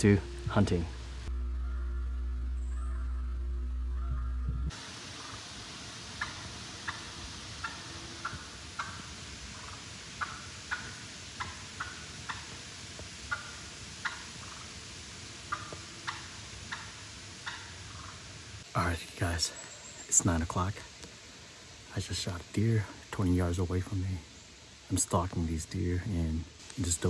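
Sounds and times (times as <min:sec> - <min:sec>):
steady hiss: 0:00.0 - 0:27.0
turkeys clucking: 0:01.0 - 0:05.5, 0:06.1 - 0:12.6, 0:13.3 - 0:14.7, 0:15.5 - 0:18.2.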